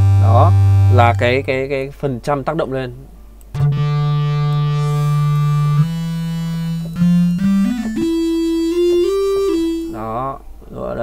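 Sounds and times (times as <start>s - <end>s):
bright synthesizer lead: 3.6s - 10.2s.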